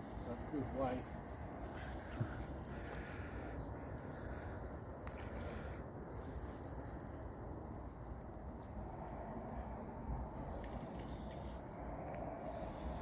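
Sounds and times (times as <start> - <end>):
fishing reel clicking: 2.4 - 8.3, 10.5 - 13.0.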